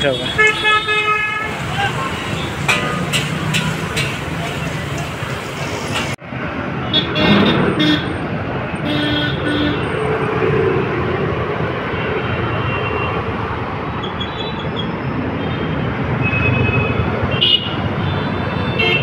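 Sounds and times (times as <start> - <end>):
motorcycles and cars passing: 0.0 - 14.0.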